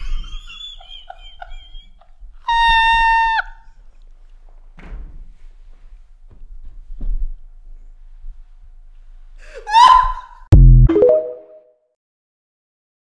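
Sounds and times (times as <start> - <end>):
men laughing wheezily: 0.0 - 3.2
electronic beep: 10.6 - 11.6.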